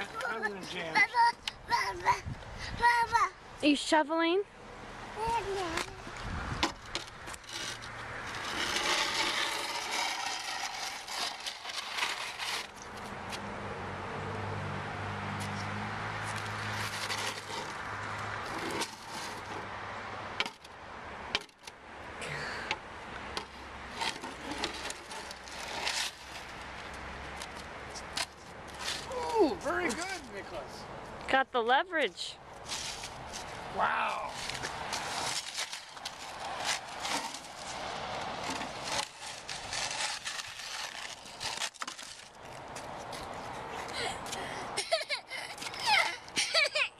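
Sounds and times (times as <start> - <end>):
shovel scraping wet asphalt: 5.4 - 13.4, 15.4 - 19.7, 23.3 - 30.4, 32.6 - 33.7, 34.3 - 43.6.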